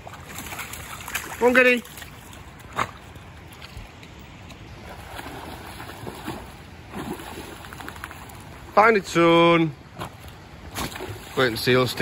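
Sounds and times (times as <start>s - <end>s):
dog splashing in water: 0.0s - 3.6s, 4.8s - 8.5s
rushing stream water: 0.0s - 12.0s.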